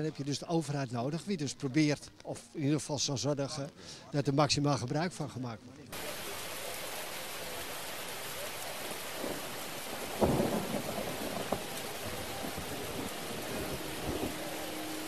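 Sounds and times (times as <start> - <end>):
steady rain: 0.0 - 15.0
thunder rumble: 8.9 - 15.0.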